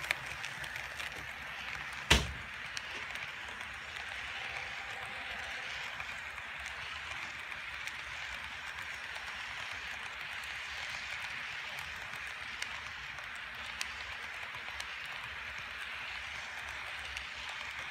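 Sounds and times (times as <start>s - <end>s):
model train wheels rattling: 0.0s - 17.9s
sharp knock: 2.1s - 2.4s.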